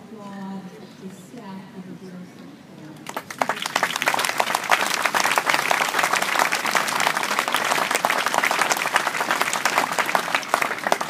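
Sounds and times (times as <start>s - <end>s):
audience applauding: 3.0s - 11.0s.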